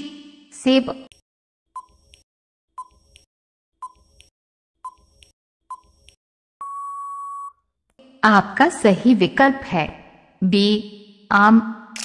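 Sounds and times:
tick-tock timer beeps: 2.8 - 7.5.

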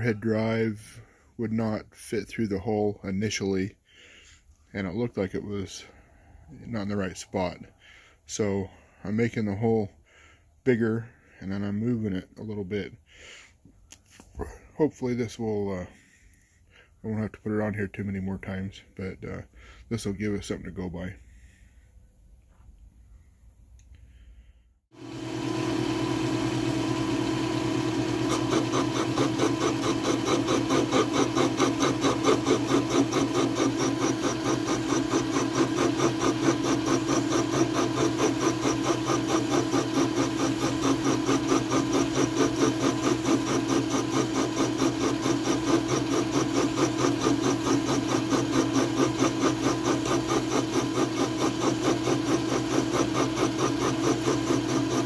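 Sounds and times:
milling machine motor hum: 25.0 - 55.0
rhythmic pulsing of metal cutting: 28.5 - 55.0.

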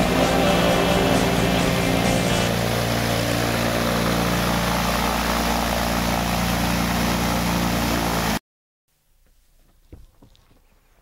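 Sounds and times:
plane engine and propeller running: 0.0 - 8.4.

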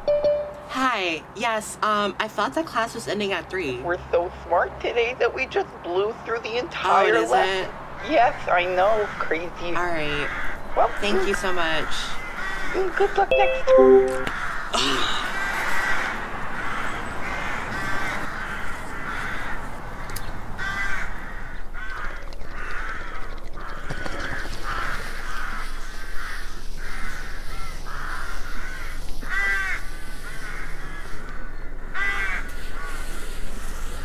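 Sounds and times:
outdoor background hiss: 0.0 - 21.3
crows cawing: 10.2 - 11.1, 11.8 - 12.9, 14.4 - 33.0.

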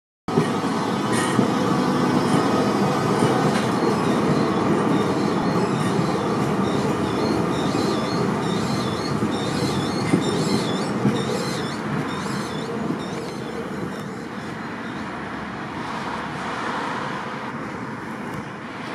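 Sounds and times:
tram wheels rumbling on rails: 0.3 - 18.9
high wavering wheel squeal: 1.2 - 15.1.

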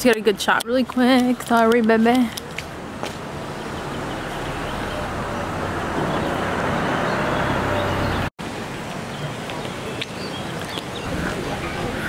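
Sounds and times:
street ambience: 0.0 - 12.0
motor vehicle passing: 2.7 - 8.3.

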